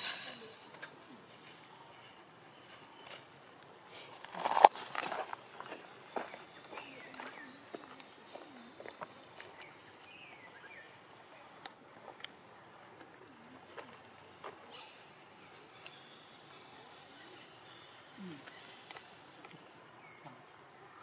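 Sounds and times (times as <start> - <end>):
rustling of dry leaf litter: 0.0 - 8.6.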